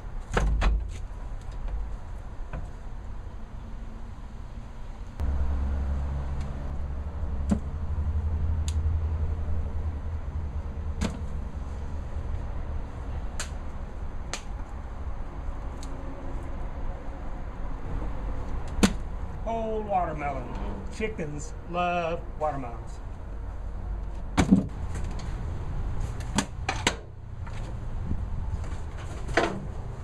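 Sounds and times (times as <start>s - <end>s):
low steady rumble: 1.7s - 28.6s.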